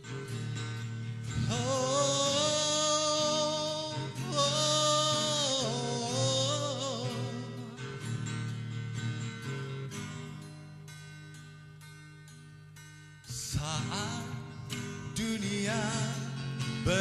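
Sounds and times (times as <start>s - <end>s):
acoustic guitar plucked: 0.0s - 17.0s
person singing wordless notes: 1.4s - 7.7s.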